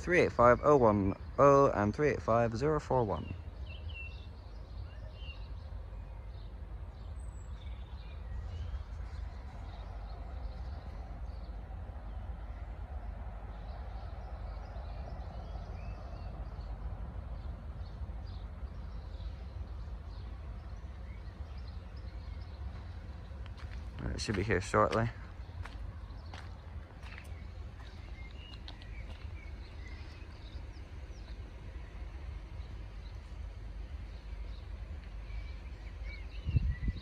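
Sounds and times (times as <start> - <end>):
steady low rumble: 0.0 - 37.0.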